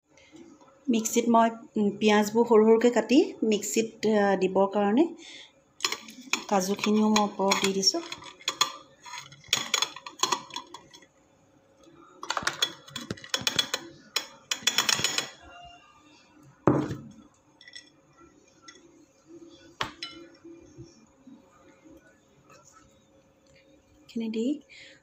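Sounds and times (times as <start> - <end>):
nuts clinking into steel jar: 5.8 - 11.0.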